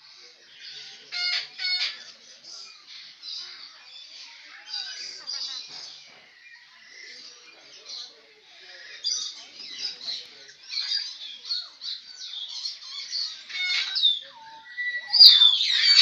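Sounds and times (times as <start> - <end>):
birds chirping: 0.0 - 16.0
bird squawk: 0.8 - 2.2, 10.7 - 16.0.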